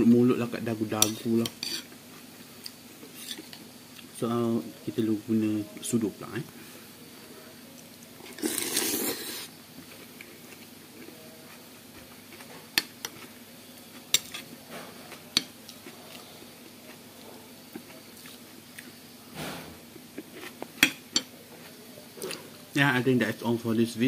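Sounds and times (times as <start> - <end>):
slurping noodles: 8.3 - 9.5.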